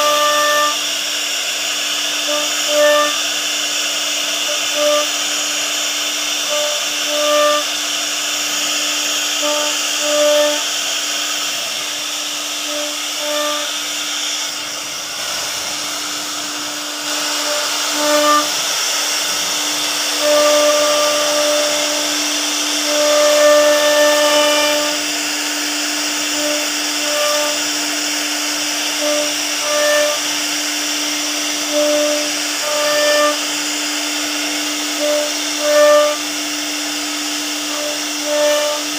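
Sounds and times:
short higher whines: 0:00.0 - 0:26.4
hiss of wood cutting: 0:00.0 - 0:38.9
router spindle whining: 0:00.0 - 0:38.9.

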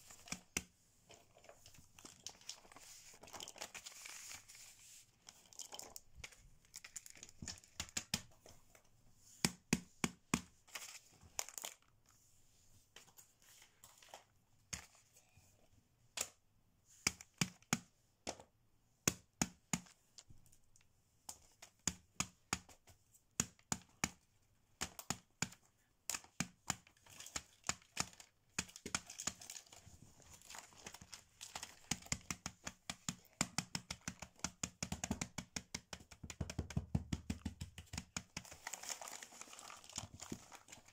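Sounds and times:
paper crinkling: 0:01.2 - 0:08.0, 0:27.0 - 0:32.2, 0:38.0 - 0:40.9
fidget toys clicking and tapping: 0:05.5 - 0:08.4, 0:17.0 - 0:18.4, 0:21.3 - 0:24.2, 0:24.8 - 0:29.8, 0:30.5 - 0:39.2.

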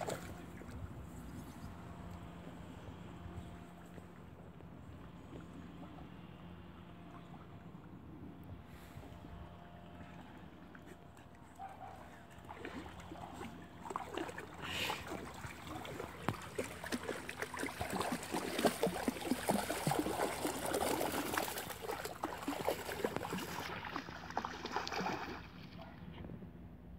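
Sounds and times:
dogs splashing through water: 0:00.0 - 0:01.2, 0:10.0 - 0:25.8.

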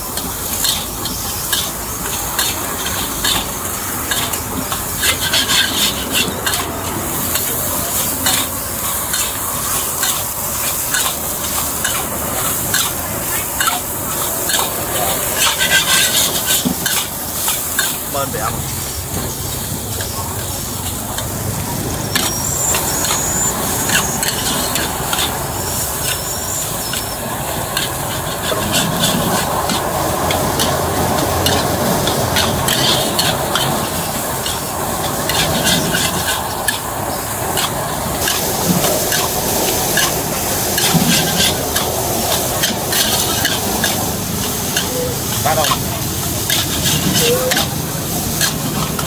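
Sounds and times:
metal spatula scraping a wok: 0:00.0 - 0:49.0
rice sizzling in a wok: 0:00.0 - 0:49.0.

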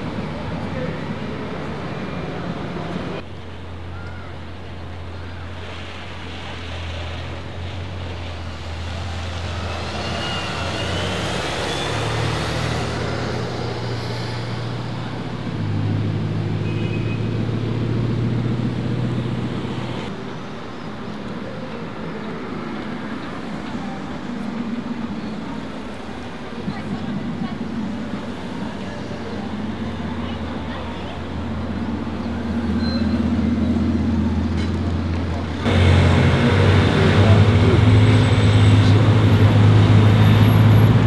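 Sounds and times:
car driving by: 0:34.9 - 0:41.0
car engine droning past: 0:35.6 - 0:41.0.

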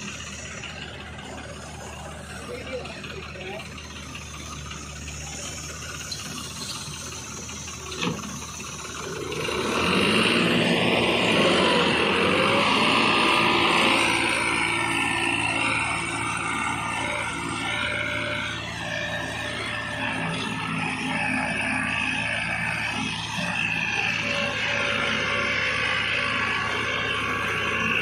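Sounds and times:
tractor diesel engines: 0:00.0 - 0:28.0.

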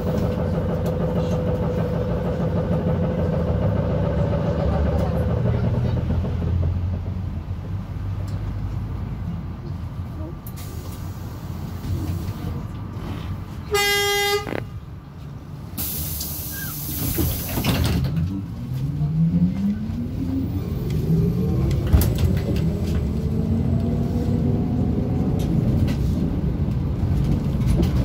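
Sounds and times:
vehicle rumble: 0:00.0 - 0:28.0
horn toot: 0:13.7 - 0:14.6.

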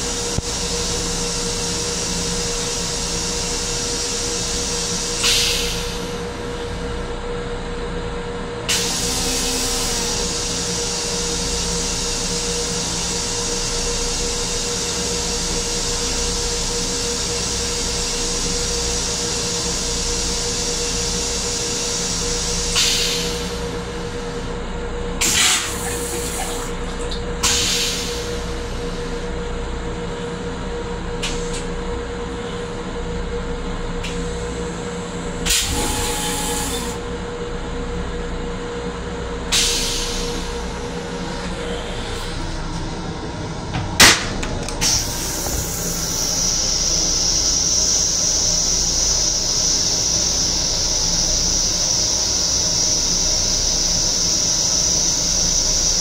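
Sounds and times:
railcar hum: 0:00.0 - 0:56.0
toilet rinse water hissing: 0:08.7 - 0:24.2, 0:25.2 - 0:26.8, 0:27.4 - 0:29.2, 0:39.5 - 0:43.4, 0:44.8 - 0:56.0.

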